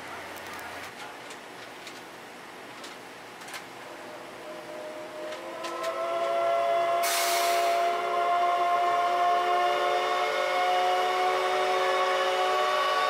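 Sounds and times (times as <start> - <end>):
steam locomotive whistle: 3.9 - 13.0.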